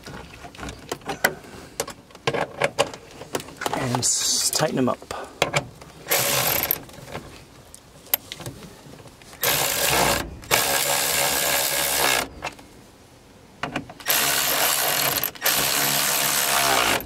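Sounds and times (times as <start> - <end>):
ratchet tightening bolts: 6.1 - 6.8.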